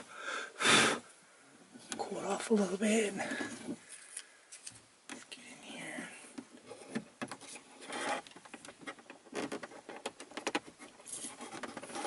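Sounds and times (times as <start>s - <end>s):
plastic clicks and scrapes: 6.6s - 12.0s.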